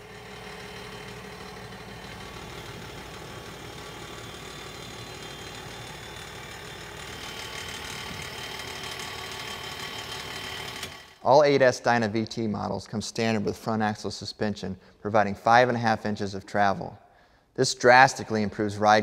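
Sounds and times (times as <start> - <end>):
tractor diesel engine idling: 0.0 - 11.2.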